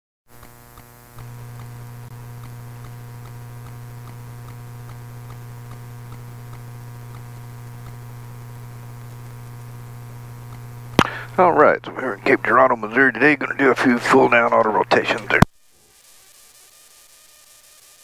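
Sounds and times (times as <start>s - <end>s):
steady electrical hum: 0.3s - 18.0s
faint repeating tick: 0.4s - 8.1s.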